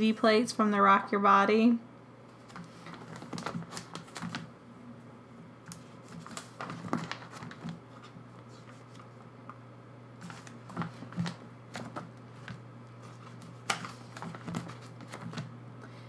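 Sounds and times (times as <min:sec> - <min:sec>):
steady low hum: 0:00.0 - 0:16.0
plastic sleeves crinkling: 0:02.3 - 0:04.5, 0:05.6 - 0:09.6, 0:10.2 - 0:15.5
pages turned: 0:02.4 - 0:04.5, 0:05.6 - 0:09.3, 0:10.2 - 0:15.5.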